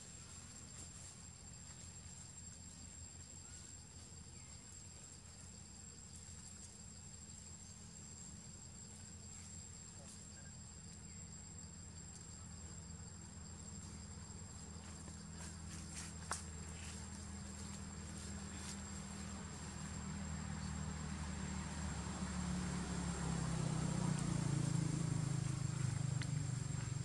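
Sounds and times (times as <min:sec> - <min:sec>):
insects droning: 0:00.0 - 0:27.0
low background hum: 0:00.0 - 0:27.0
faint ticks: 0:25.9 - 0:26.9.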